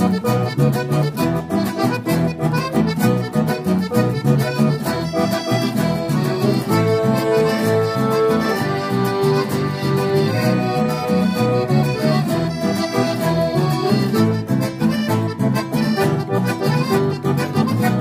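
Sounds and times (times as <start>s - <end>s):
accordion playing a tune: 0.0s - 18.0s
strummed acoustic guitar: 0.0s - 18.0s.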